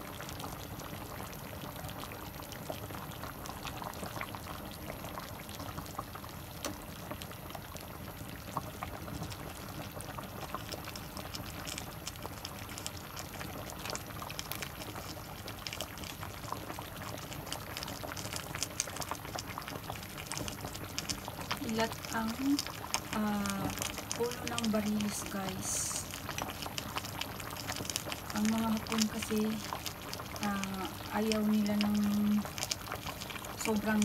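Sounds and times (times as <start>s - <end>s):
broth boiling and bubbling: 0.0s - 34.0s.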